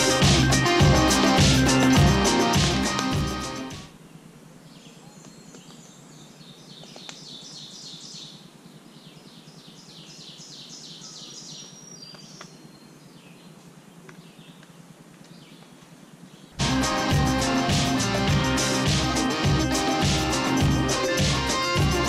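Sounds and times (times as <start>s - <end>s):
songbird singing: 3.9s - 16.6s.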